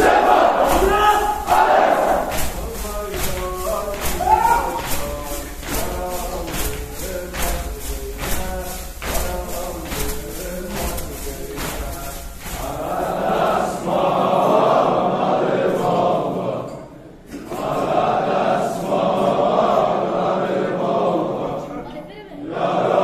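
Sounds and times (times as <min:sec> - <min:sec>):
crowd of men chanting: 0:00.0 - 0:05.1, 0:12.6 - 0:16.8, 0:17.4 - 0:21.7, 0:22.4 - 0:23.0
rhythmic striking: 0:00.0 - 0:15.0.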